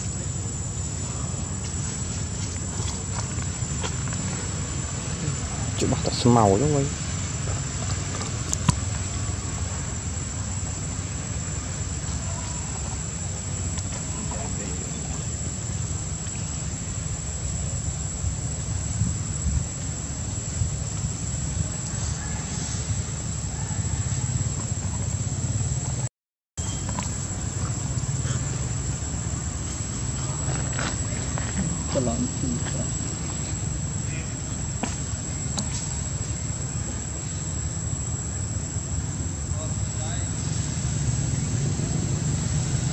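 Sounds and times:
background rumble and hiss: 0.0 - 26.0, 26.8 - 42.9
high steady whine: 0.0 - 42.9
wind rumbling on microphone: 15.0 - 26.0.

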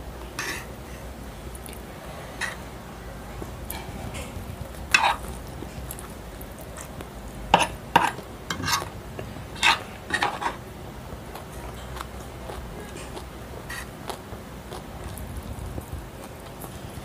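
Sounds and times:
cutlery scraping a plate: 0.4 - 0.7, 2.3 - 2.7, 3.7 - 5.3, 7.6 - 8.9, 9.6 - 10.6, 12.8 - 13.9.

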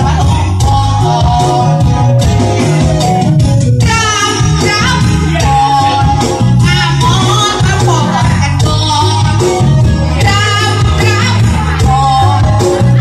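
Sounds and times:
woman singing into microphone: 0.0 - 2.7, 3.8 - 13.0
amplified backing music with beat: 0.0 - 13.0.

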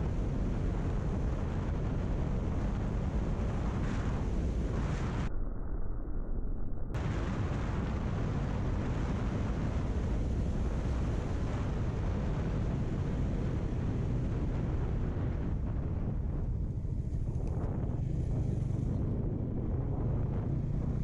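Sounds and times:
wind rushing over microphone: 0.0 - 6.2, 6.9 - 21.0.

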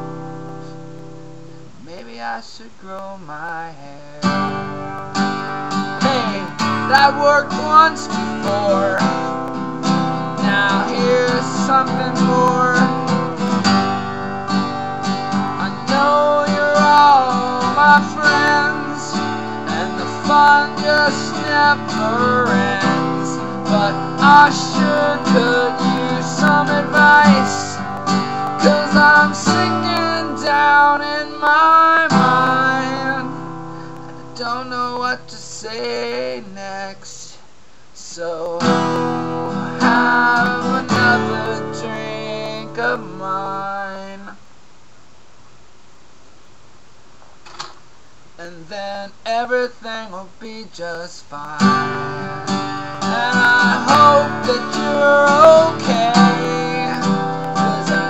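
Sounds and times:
acoustic guitar strumming: 0.0 - 37.3, 38.3 - 44.4, 51.4 - 58.0
man singing: 1.8 - 44.4, 48.4 - 58.0.

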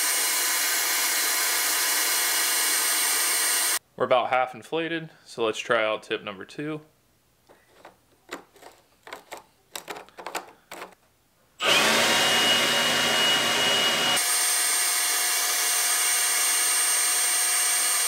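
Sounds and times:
leaf blower whining: 0.0 - 3.8, 11.6 - 18.0
plastic parts clicking: 7.5 - 11.0.

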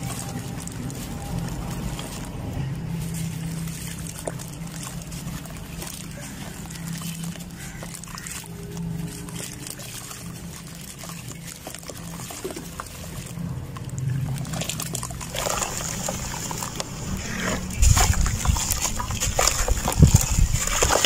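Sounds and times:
clumps splashing into water: 0.0 - 21.0
wet cement crumbling into water: 0.0 - 21.0.

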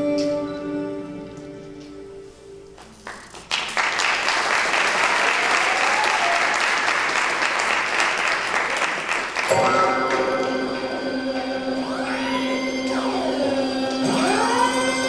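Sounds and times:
audience applauding: 2.8 - 10.6
dance music: 9.5 - 15.0.

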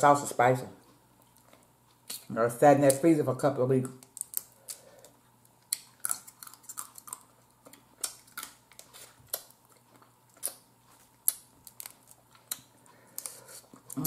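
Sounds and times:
crab shell cracking: 3.9 - 10.6, 11.2 - 13.3.

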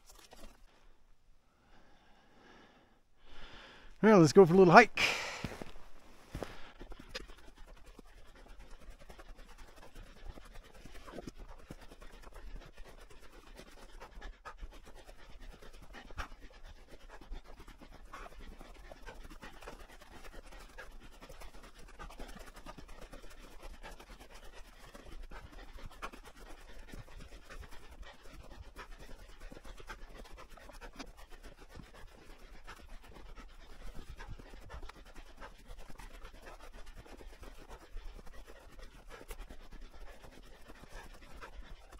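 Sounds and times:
hard breathing: 0.5 - 9.2
footsteps crunching through snow: 4.1 - 6.8.

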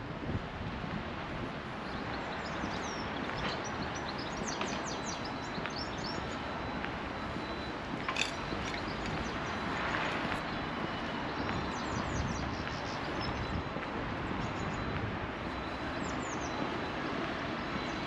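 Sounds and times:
small birds chirping: 1.9 - 13.5.

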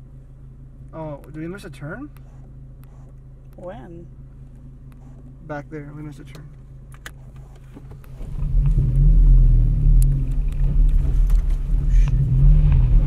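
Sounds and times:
car engine and tyres on gravel: 4.2 - 13.0.

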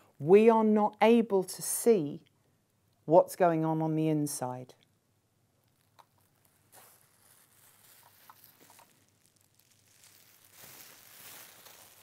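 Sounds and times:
bubble wrap rustling and crinkling: 5.6 - 12.0.

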